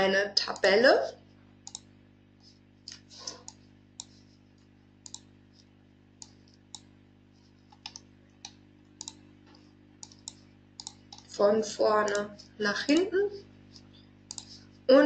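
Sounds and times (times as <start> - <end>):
faint low hum: 0.0 - 15.0
computer mouse clicking: 1.6 - 6.9, 7.6 - 11.4, 13.7 - 14.6.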